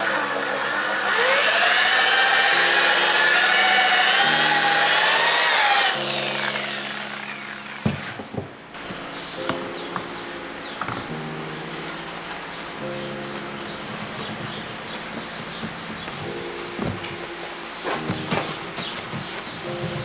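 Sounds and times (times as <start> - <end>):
polisher motor whine: 0.0 - 8.2
polisher knocking down: 0.0 - 9.6
soft background music: 0.0 - 20.0.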